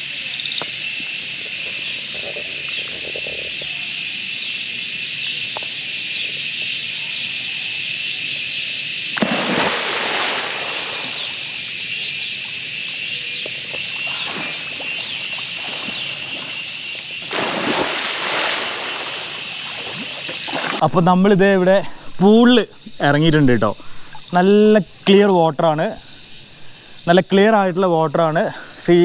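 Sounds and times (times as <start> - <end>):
cicadas shrilling: 0.0 - 29.0
water splashing in a pool: 9.2 - 11.7, 13.7 - 21.0.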